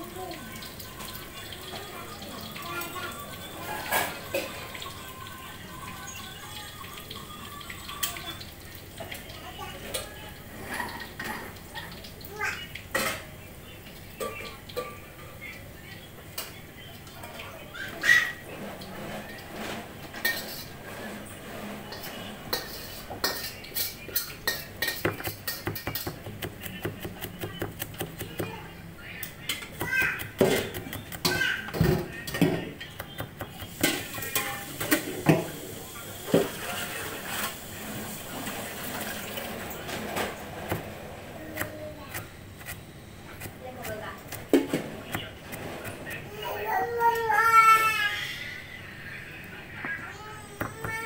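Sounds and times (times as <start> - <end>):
water running in steel sink: 0.0 - 16.4, 17.2 - 46.2
knife chopping on plastic board: 25.0 - 28.5, 29.7 - 34.3, 40.6 - 40.9, 43.4 - 46.2.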